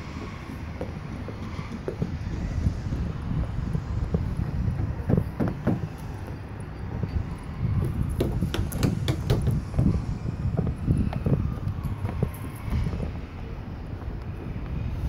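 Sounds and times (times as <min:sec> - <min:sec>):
wind buffeting microphone: 0:00.0 - 0:15.0
sharp knocks and clicks: 0:08.2 - 0:09.6.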